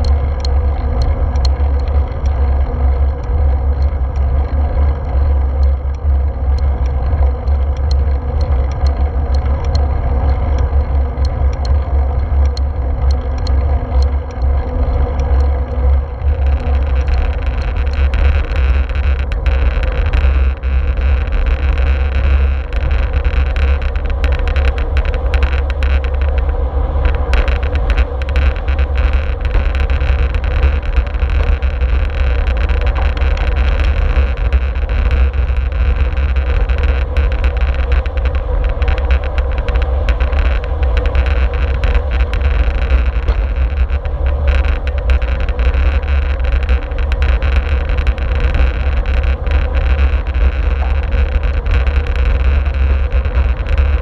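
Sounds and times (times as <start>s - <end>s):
tyre noise on asphalt: 15.2s - 54.0s.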